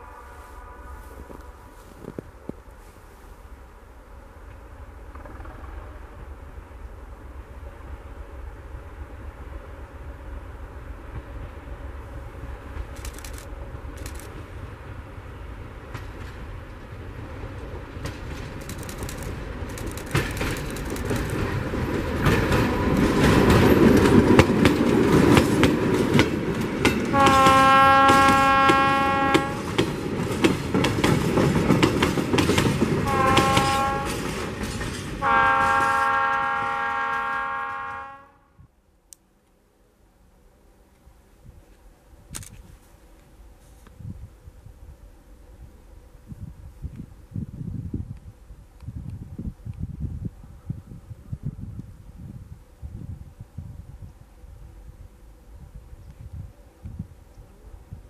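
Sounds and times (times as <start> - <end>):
diesel locomotive engine: 0.0 - 58.0
train wheels clicking over rail joints: 4.4 - 6.1, 17.6 - 38.0
locomotive horn blasts: 27.1 - 29.7, 33.0 - 34.4, 35.2 - 38.6.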